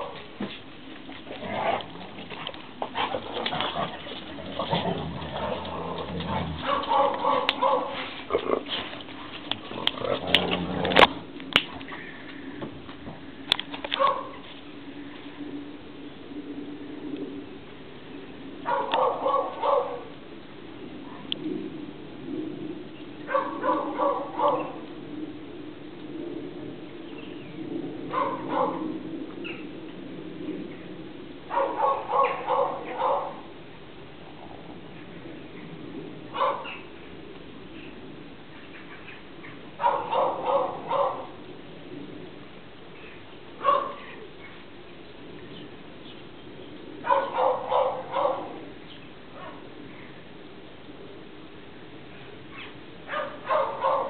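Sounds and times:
dogs barking: 4.6s - 8.6s, 14.0s - 14.4s, 18.6s - 20.1s, 23.3s - 24.8s, 28.1s - 28.9s, 31.5s - 33.5s, 36.3s - 36.8s, 39.8s - 41.4s, 43.6s - 44.2s, 47.0s - 48.7s, 49.4s - 49.7s, 52.6s - 54.0s.

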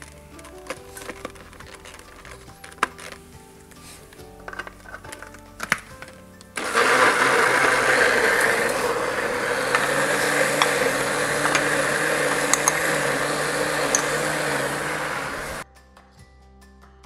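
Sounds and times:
electric blender running: 6.6s - 15.6s.

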